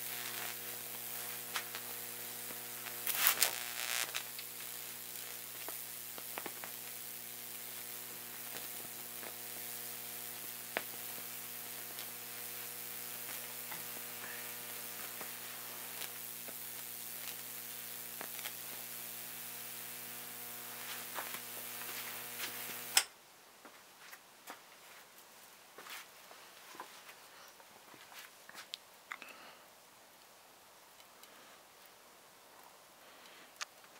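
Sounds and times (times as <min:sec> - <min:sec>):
high-voltage supply humming: 0:00.0 - 0:23.1
electrical hiss and crackles: 0:00.0 - 0:23.2, 0:24.8 - 0:33.9.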